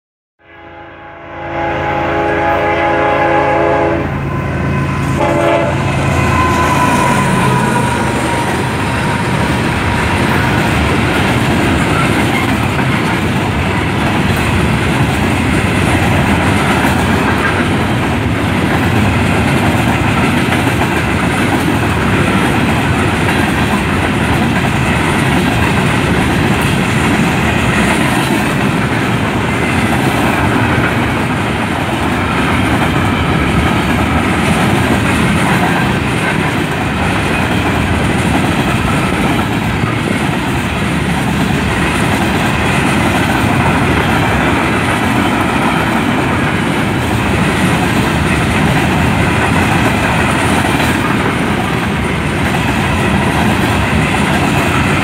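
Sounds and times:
train horn blasts: 0.4 - 10.4
train wheels clattering on rail: 5.2 - 55.0.

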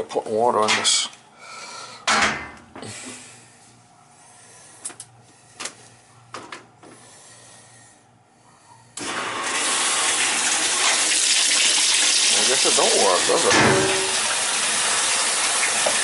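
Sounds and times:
water rushing into washer tub: 9.0 - 16.0.

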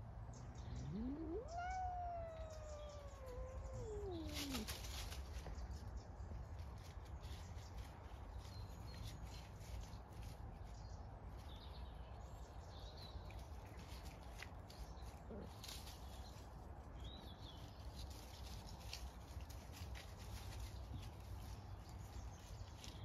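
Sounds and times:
faint bird chirps: 0.3 - 5.7.

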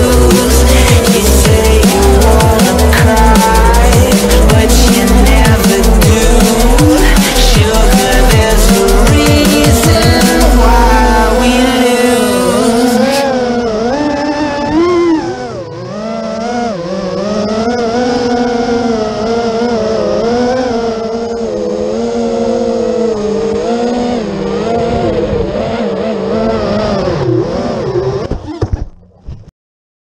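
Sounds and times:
drone crashing knocks: 0.0 - 13.0
drone motors whining: 0.0 - 29.2.

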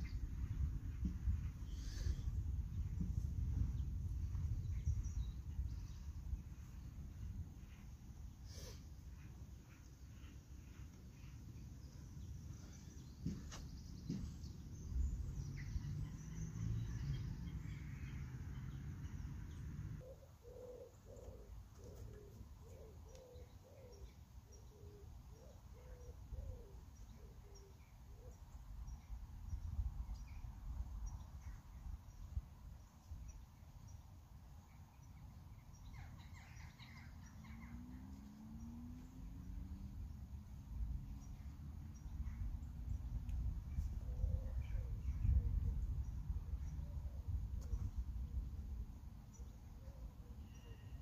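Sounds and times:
wind rumble on microphone: 0.0 - 7.9, 36.1 - 49.6
small birds chirping faintly: 0.0 - 51.0
pigeon cooing: 20.0 - 24.0.

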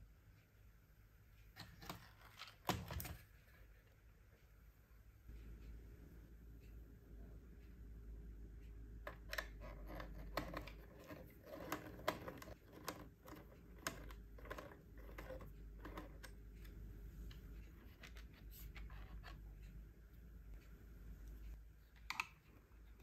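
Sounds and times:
screwdriver clicking and scraping: 9.1 - 16.4.

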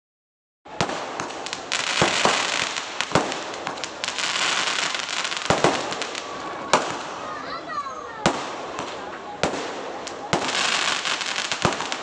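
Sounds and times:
firework bangs: 0.7 - 12.0
crackling hiss of burning sparks: 0.8 - 12.0.

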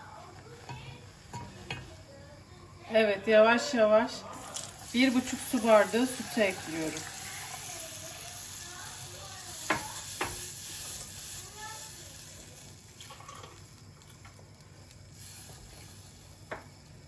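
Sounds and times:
soft sizzle: 0.0 - 17.0
spatula stirring in saucepan: 4.3 - 11.8.

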